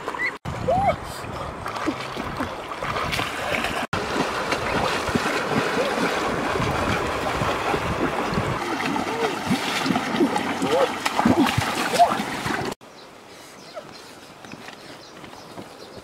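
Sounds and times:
person wading through river water: 0:00.0 - 0:12.8
ducks beating wings on water: 0:01.8 - 0:12.8.

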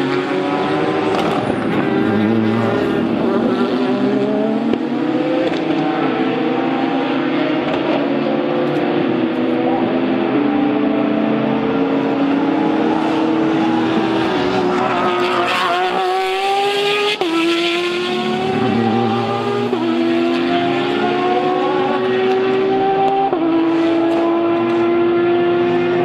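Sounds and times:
race car engines accelerating: 0:00.0 - 0:26.0
race car passing: 0:00.0 - 0:26.0.

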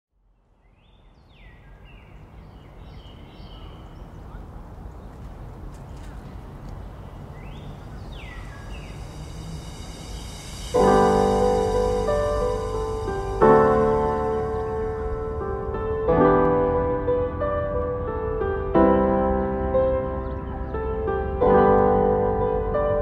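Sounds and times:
outdoor background hiss: 0:00.2 - 0:23.0
birds whistling: 0:00.7 - 0:04.5, 0:05.9 - 0:15.9, 0:19.4 - 0:21.8.

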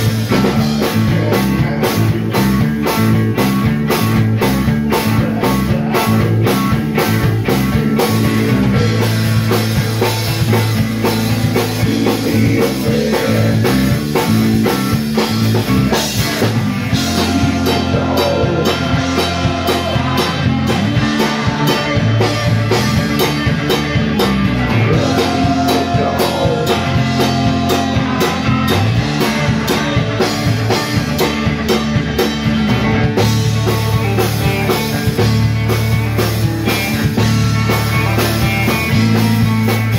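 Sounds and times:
live rock band playing: 0:00.0 - 0:39.9
person singing: 0:00.3 - 0:03.5, 0:04.8 - 0:09.5, 0:11.6 - 0:14.8, 0:15.7 - 0:23.2, 0:24.7 - 0:30.4.

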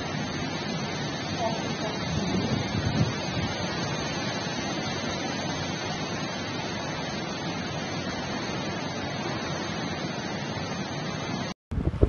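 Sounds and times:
storm rushing noise: 0:01.4 - 0:04.9, 0:11.7 - 0:12.0.

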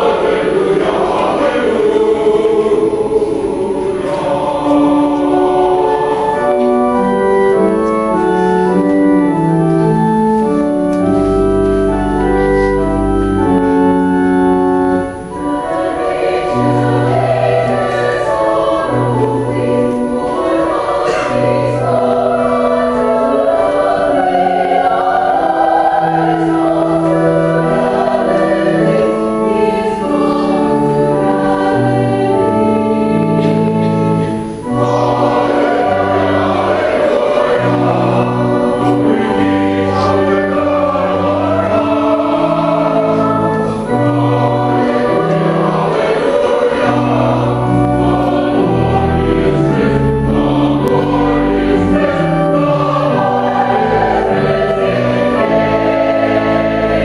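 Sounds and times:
choir singing a hymn: 0:00.0 - 0:57.0
organ: 0:00.0 - 0:57.0.

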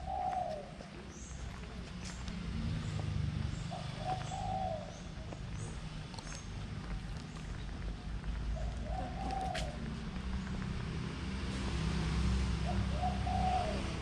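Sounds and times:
bird cooing: 0:00.0 - 0:01.0, 0:03.7 - 0:05.2, 0:08.6 - 0:10.0, 0:12.6 - 0:14.0.

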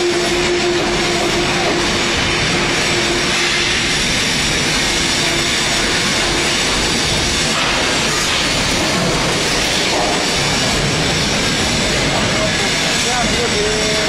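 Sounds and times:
hydraulic compactor running: 0:00.0 - 0:13.7
steady whine: 0:00.0 - 0:14.0.

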